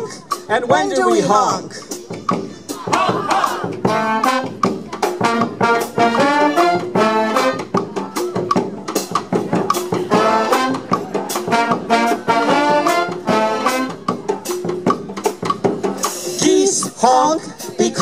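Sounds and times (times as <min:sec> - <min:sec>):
bass drum and snare beat: 0:00.4 - 0:18.0
saxophones and brass horns: 0:02.7 - 0:18.0.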